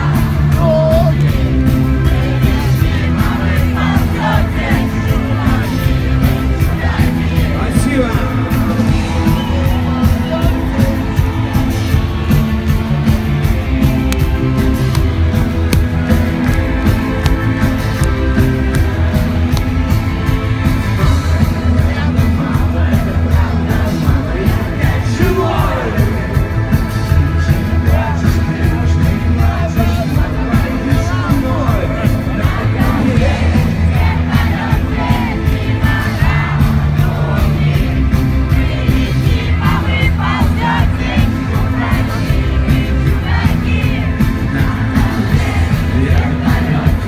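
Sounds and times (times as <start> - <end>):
man singing lead vocals: 0.0 - 12.0, 20.9 - 47.0
crowd shouting along: 0.0 - 26.6, 27.8 - 47.0
heavy bass: 0.0 - 47.0
live rock band playing: 0.0 - 47.0
drum hits: 13.9 - 19.9.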